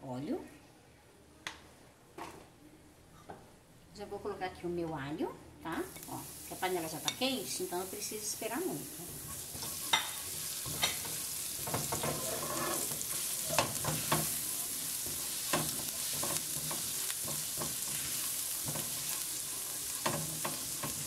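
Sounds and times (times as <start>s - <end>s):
garlic sizzling in hot oil: 5.8s - 21.0s
spatula scraping a wok: 9.0s - 21.0s.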